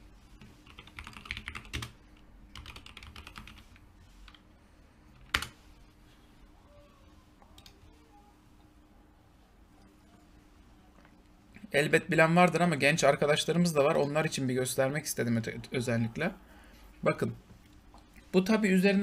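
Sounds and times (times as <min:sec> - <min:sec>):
keyboard typing: 0:00.4 - 0:04.4, 0:05.2 - 0:05.6.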